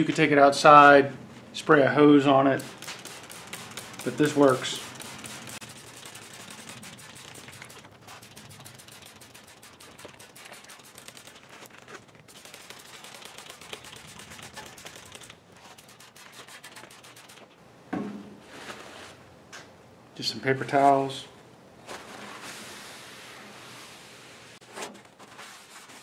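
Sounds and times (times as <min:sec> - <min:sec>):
spray bottle clicks and spritzes: 0:02.6 - 0:11.5.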